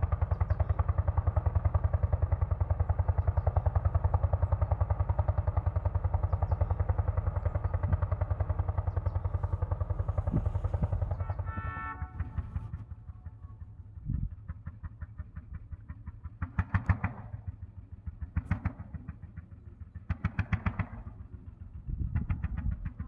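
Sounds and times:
tractor engine pulsing: 0.9 - 21.4.

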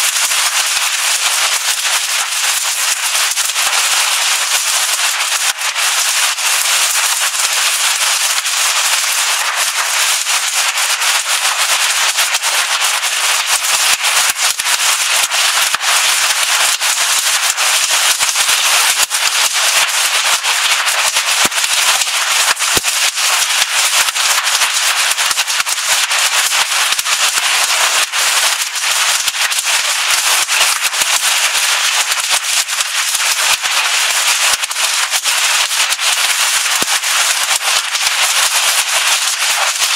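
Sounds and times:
rain: 0.0 - 39.9
hail clattering on a roof: 8.2 - 39.9.

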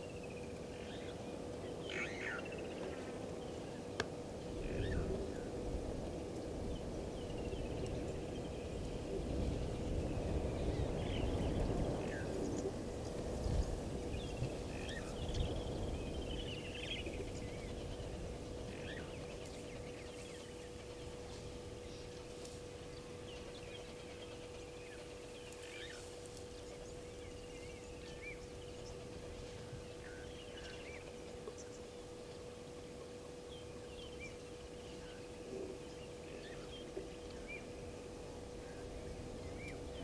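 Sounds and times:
faint steady hum: 0.0 - 40.0
low rumbling noise: 0.0 - 40.0.

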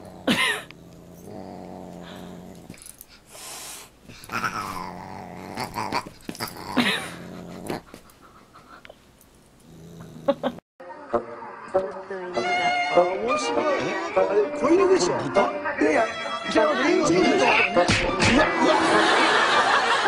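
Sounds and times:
dog growling: 0.0 - 3.0, 4.1 - 8.1, 9.6 - 10.6.

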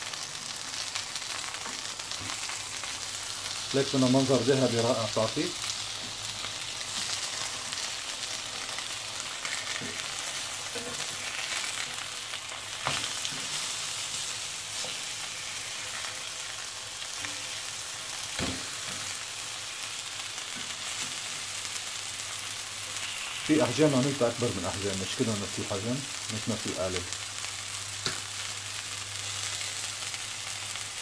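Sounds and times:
patties sizzling in a pan: 0.0 - 31.0.

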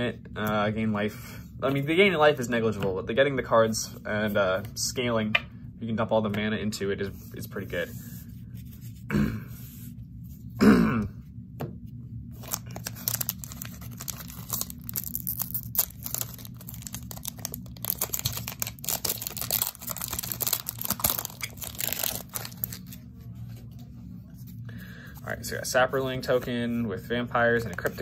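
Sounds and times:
person coughing: 9.1 - 9.6, 10.6 - 11.2
foil wrapper crinkling and tearing: 12.4 - 23.0.

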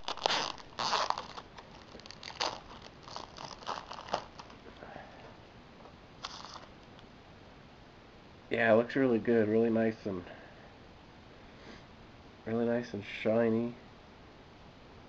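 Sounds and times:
plastic shrink-wrap tearing: 0.0 - 4.6, 6.2 - 6.7.

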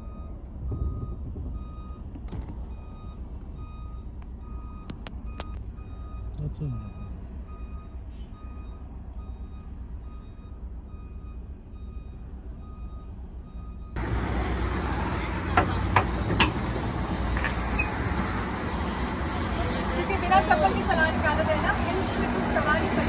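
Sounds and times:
diesel engine rumble: 0.0 - 23.0
truck reversing alarm beeping: 0.0 - 23.0
truck engine running: 7.2 - 23.0.

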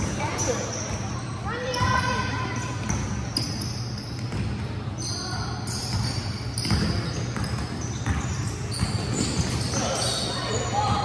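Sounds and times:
basketball bouncing on wooden floor: 4.2 - 4.7, 5.9 - 9.7
players' voices: 7.1 - 11.0.

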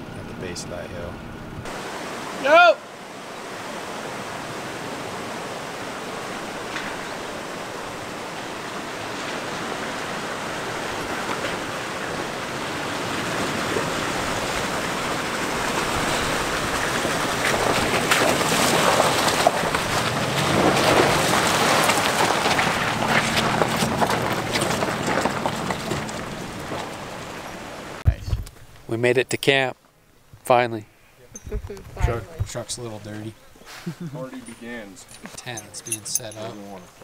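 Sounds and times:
creek water running: 0.0 - 37.0
truck tyres splashing through water: 1.7 - 28.0.

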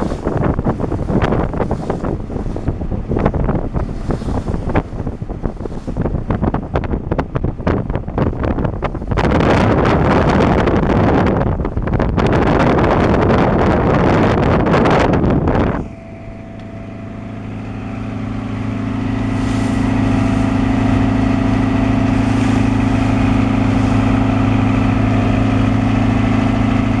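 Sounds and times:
boat engine drone: 0.0 - 27.0
wind buffeting microphone: 0.0 - 27.0.

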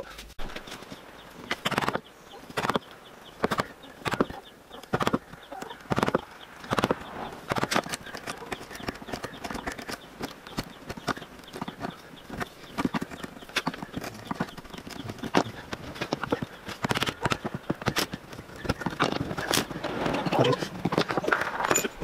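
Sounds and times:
chisel clicking and scraping: 3.4 - 19.9.

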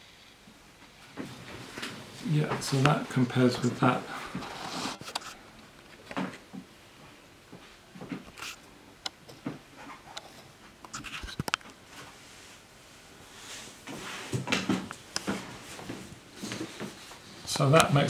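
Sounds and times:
paper rustling: 3.6 - 5.4.

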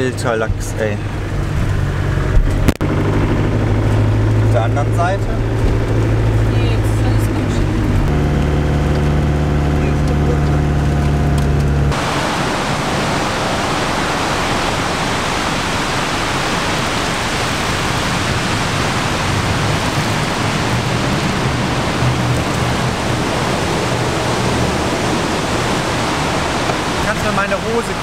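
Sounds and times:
heavy rain pouring: 1.1 - 28.0.

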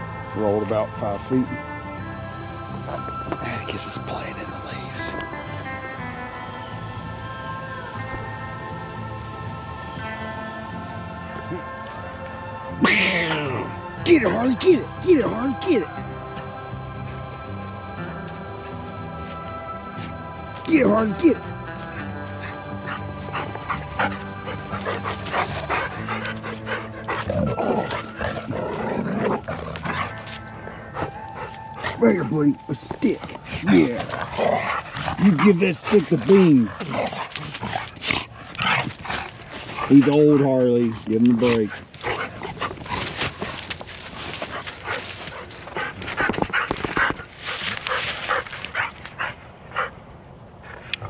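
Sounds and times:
background music with held tones: 0.0 - 48.4
dog barking and panting: 13.3 - 17.3, 20.1 - 51.0.

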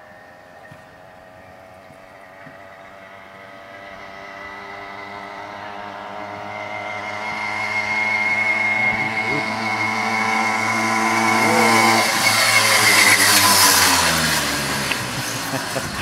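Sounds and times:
motorbike engine approaching: 0.0 - 16.0.

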